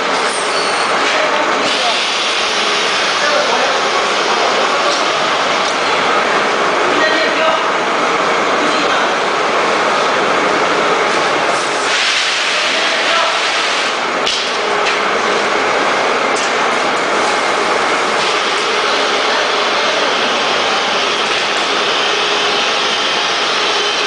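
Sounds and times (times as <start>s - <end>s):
bagging machine clatter and hiss: 0.0s - 3.8s, 11.2s - 15.1s.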